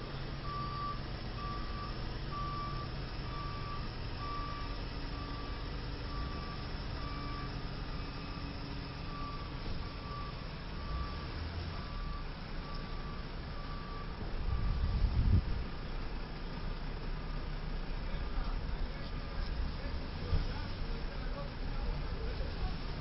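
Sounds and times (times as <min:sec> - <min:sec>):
truck backup alarm beeping: 0:00.0 - 0:17.8
heavy truck engine running: 0:00.0 - 0:23.0.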